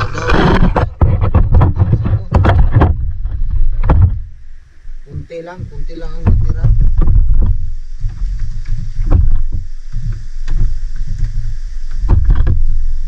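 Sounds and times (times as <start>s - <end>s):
sharp knocks: 0.0s - 4.3s, 5.6s - 11.3s
wind and water rumble: 0.0s - 13.0s.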